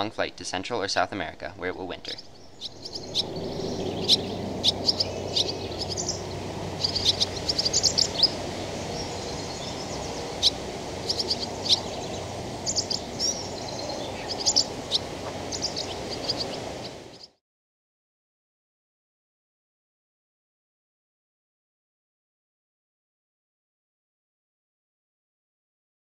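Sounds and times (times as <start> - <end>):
low outdoor rumble: 0.0 - 17.2
swallows chirping: 1.2 - 17.4.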